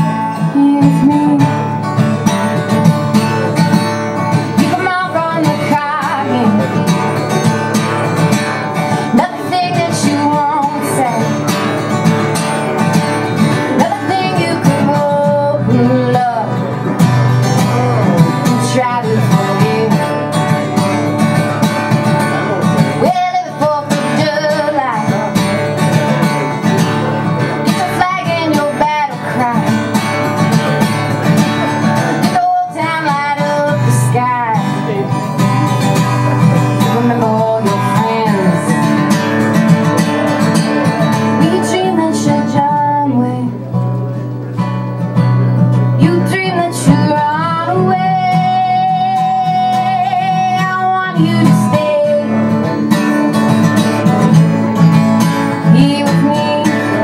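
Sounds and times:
woman singing folk song: 0.0s - 44.0s, 44.6s - 57.0s
acoustic guitar strumming: 0.0s - 57.0s.

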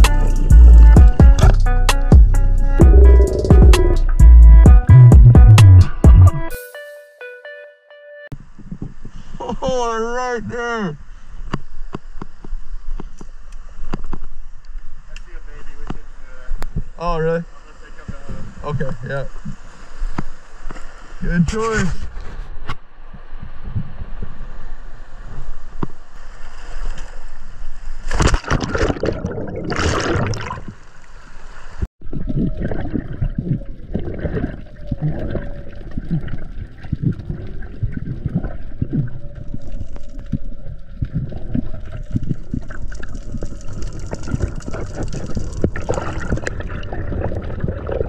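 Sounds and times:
underwater gurgling and bubbling: 2.9s - 3.9s, 28.2s - 30.9s, 32.0s - 48.0s
sea water splashing over rocks: 24.1s - 48.0s.

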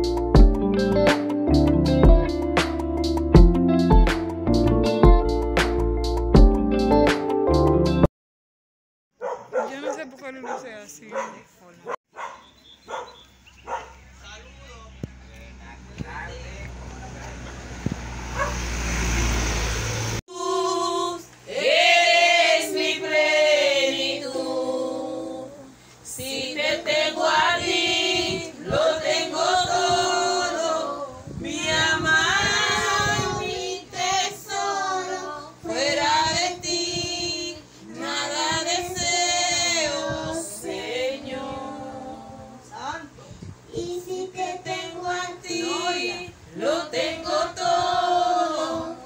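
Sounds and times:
girl singing into microphone: 28.2s - 28.7s, 31.0s - 42.7s, 43.4s - 46.4s, 47.2s - 49.0s.

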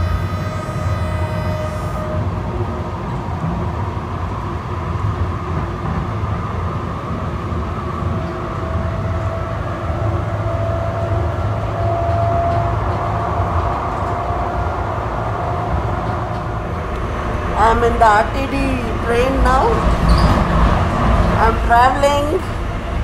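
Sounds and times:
rising whine: 0.0s - 4.3s, 11.0s - 21.4s
train low rumble on track: 0.0s - 23.0s.

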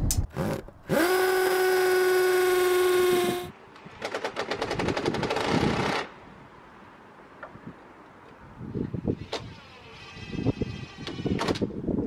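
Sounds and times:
power drill whining: 0.3s - 3.5s.

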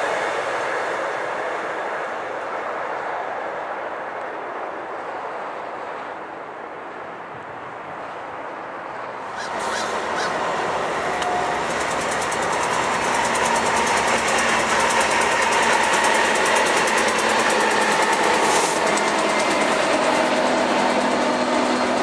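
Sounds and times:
diesel locomotives passing: 0.0s - 22.0s
train wheels clicking over rails: 9.2s - 22.0s.

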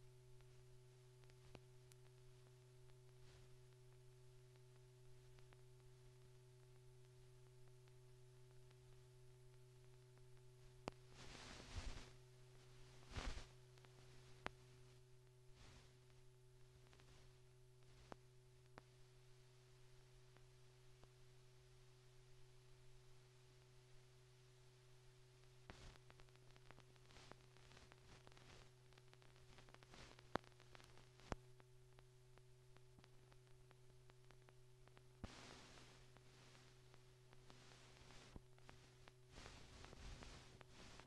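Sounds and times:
crackle bursts: 0.0s - 23.4s, 24.3s - 41.0s
faint clicks: 1.2s - 11.2s, 13.1s - 14.6s.

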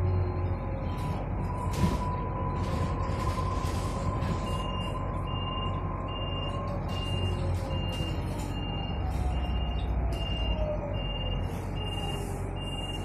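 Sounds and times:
bus engine hum and rumble: 0.0s - 13.0s
faint high beep: 9.6s - 13.0s.

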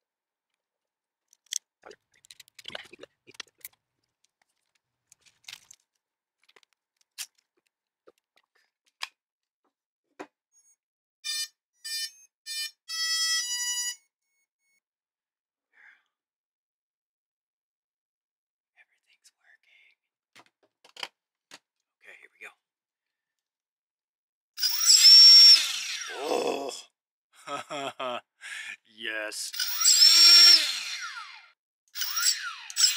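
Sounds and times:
plastic parts clicking: 1.3s - 7.5s, 20.4s - 21.1s.

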